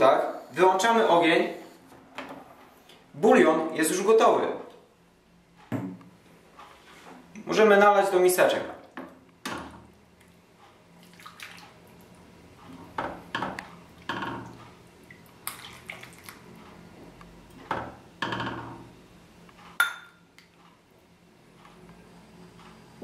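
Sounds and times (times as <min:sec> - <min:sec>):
broth splashing: 0:14.0 - 0:16.5.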